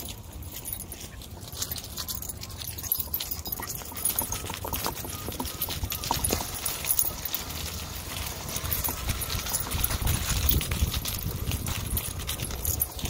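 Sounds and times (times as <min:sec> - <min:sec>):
light metallic jingling: 0:00.0 - 0:13.0
electric unicycle rumbling over grass: 0:03.4 - 0:13.0.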